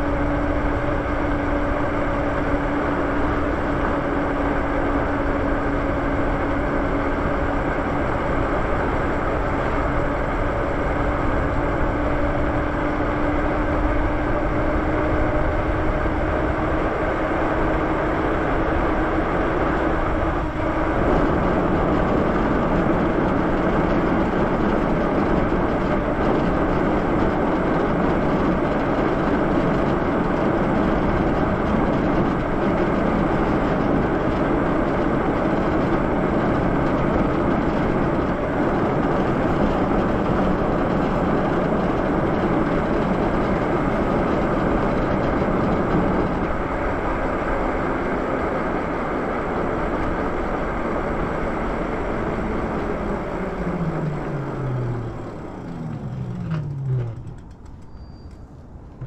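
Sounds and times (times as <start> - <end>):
tyres humming on pavement: 0.0 - 59.0.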